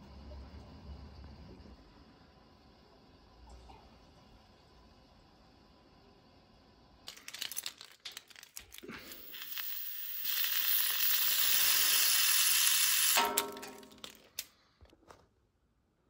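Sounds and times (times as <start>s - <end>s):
air hissing from radiator valve: 8.9s - 13.2s.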